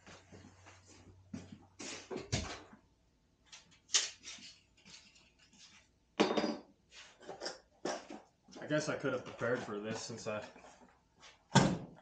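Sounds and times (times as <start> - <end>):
tools knocking and rustling: 3.5 - 8.6.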